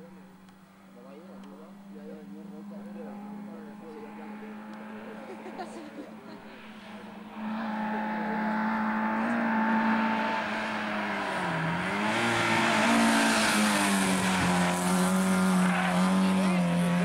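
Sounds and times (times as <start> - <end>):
car engine at high revs: 0.0 - 17.0.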